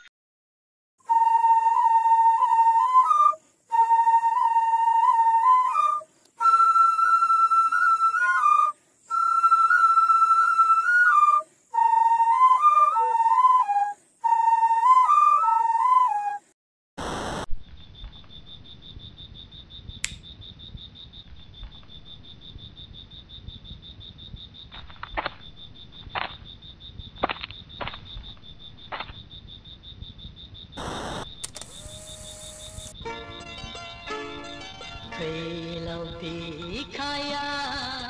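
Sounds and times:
crickets chirping: 0:01.0 - 0:16.2, 0:17.0 - 0:38.0
music: 0:01.0 - 0:16.4, 0:33.0 - 0:38.0
soft clicks: 0:20.0 - 0:20.2.

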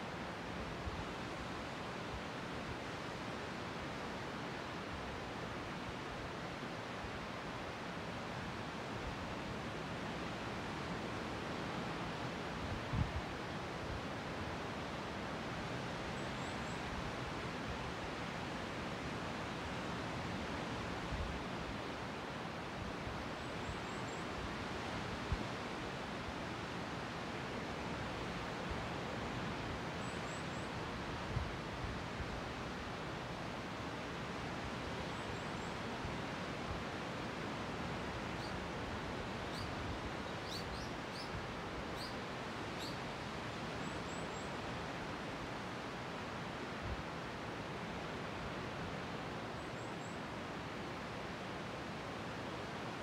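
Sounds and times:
small bird chirping: 0:42.0 - 0:42.2, 0:42.8 - 0:43.0.

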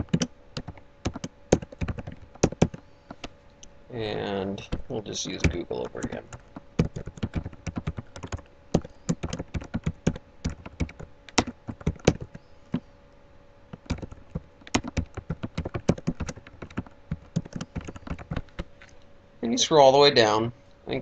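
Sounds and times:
typing on computer keyboard: 0:00.0 - 0:03.2, 0:05.4 - 0:12.4, 0:13.7 - 0:18.7.

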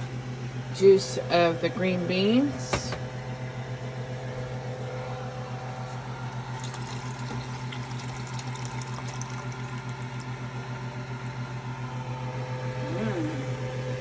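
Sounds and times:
steady low hum: 0:00.0 - 0:14.0
liquid pouring into a pot: 0:06.3 - 0:10.5.

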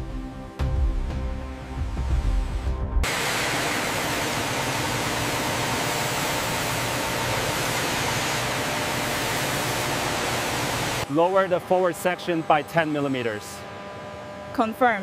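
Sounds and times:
coolant spraying hiss: 0:03.1 - 0:11.1.

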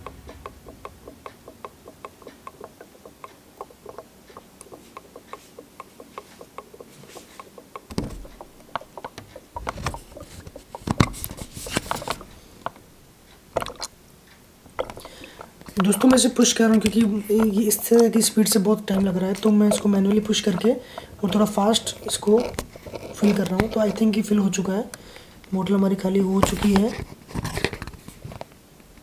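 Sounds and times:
plastic bottle knocks and crackles: 0:07.9 - 0:12.8, 0:13.6 - 0:13.9.

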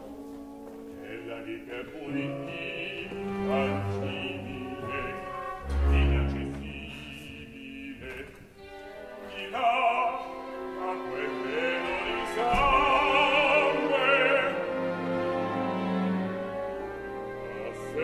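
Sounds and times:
orchestra playing: 0:00.0 - 0:08.0, 0:08.6 - 0:18.0
opera singer with vibrato: 0:09.2 - 0:14.7.

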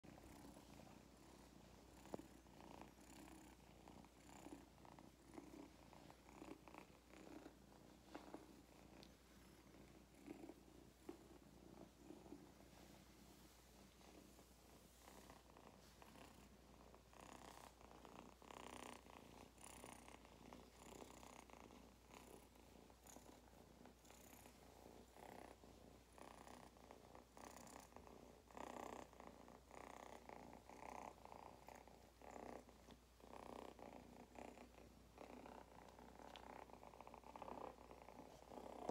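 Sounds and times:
kitten purring: 0:00.0 - 0:38.9.

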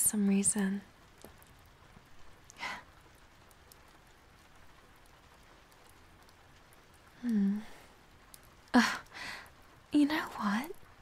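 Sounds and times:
woman sighing: 0:07.2 - 0:07.9, 0:08.8 - 0:09.5.

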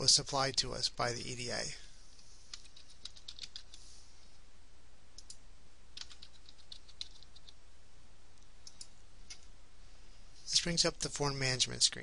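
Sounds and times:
keyboard typing: 0:02.5 - 0:03.8, 0:06.0 - 0:07.6, 0:08.6 - 0:09.5.

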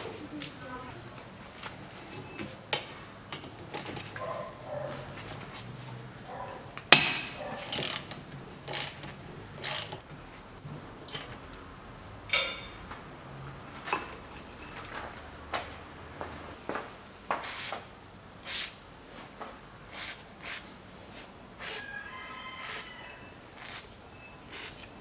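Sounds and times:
sharp metal clank: 0:12.3 - 0:12.8
short high squeaks: 0:22.6 - 0:25.0.

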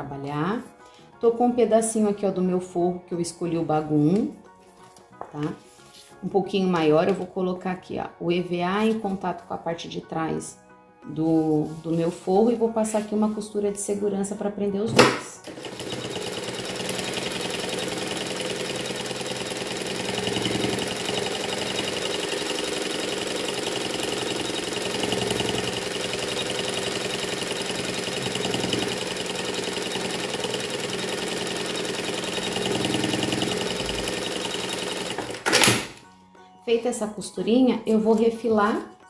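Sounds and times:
sewing machine running: 0:15.4 - 0:35.8.

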